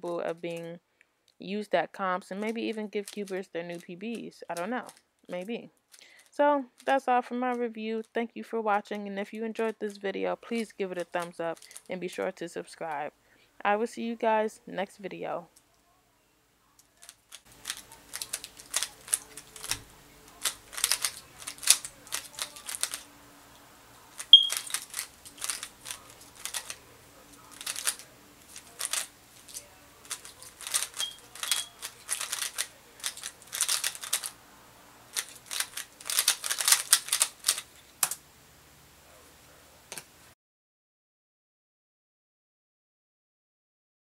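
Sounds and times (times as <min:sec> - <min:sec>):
puzzle cube clacking turns: 0:02.4 - 0:05.0, 0:16.9 - 0:23.1, 0:24.1 - 0:34.4, 0:35.1 - 0:38.2.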